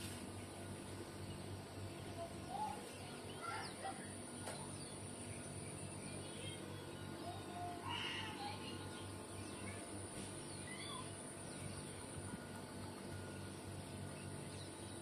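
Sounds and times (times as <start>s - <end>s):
faint high chirps: 2.0s - 15.0s.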